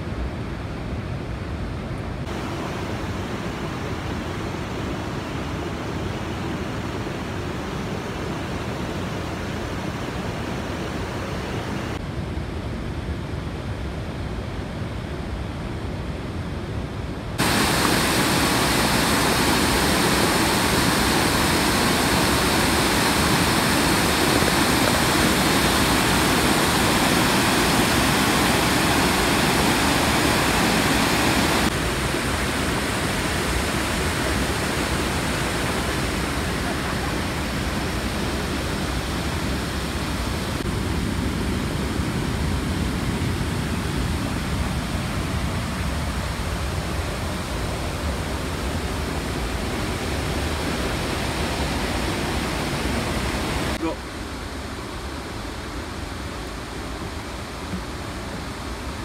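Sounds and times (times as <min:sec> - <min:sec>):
water rushing over weir: 0:02.2 - 0:12.0, 0:17.4 - 0:59.0
soft steady rushing: 0:17.4 - 0:41.3.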